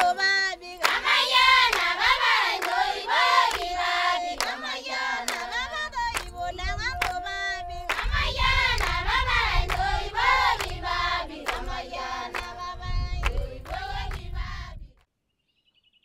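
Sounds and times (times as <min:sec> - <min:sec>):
hand clapping: 0:00.0 - 0:00.2, 0:00.8 - 0:02.8, 0:03.4 - 0:03.8, 0:04.4 - 0:07.2, 0:07.9 - 0:09.0, 0:10.6 - 0:10.8, 0:11.4 - 0:11.7, 0:12.3 - 0:12.6, 0:13.2 - 0:14.3
women singing in unison: 0:00.0 - 0:15.0.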